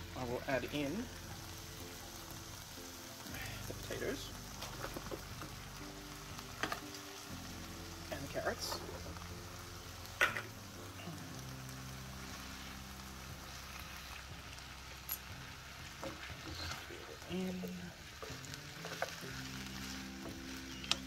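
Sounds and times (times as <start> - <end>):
food sizzling in a wok: 0.0 - 21.0
spatula stirring food: 11.4 - 21.0.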